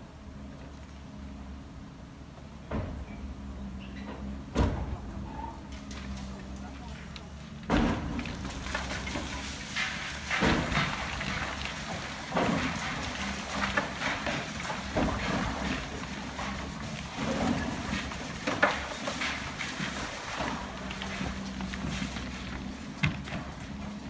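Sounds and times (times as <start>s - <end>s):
concrete crashing and falling: 7.7s - 24.0s.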